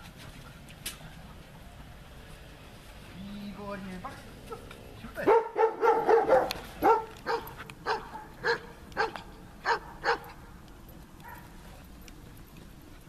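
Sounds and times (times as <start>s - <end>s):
dog barking: 4.5s - 10.4s.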